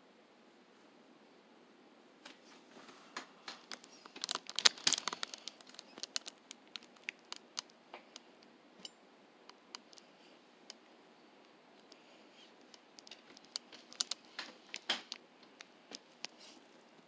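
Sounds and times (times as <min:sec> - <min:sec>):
crinkly handling clicks: 0:03.5 - 0:08.2, 0:11.8 - 0:16.6.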